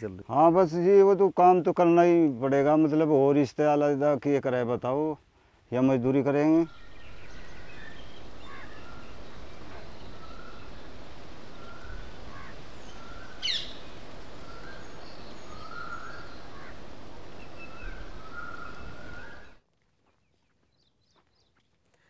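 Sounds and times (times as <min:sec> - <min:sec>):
steady outdoor hiss: 0:00.0 - 0:19.7
birds chirping and calling: 0:06.0 - 0:19.6.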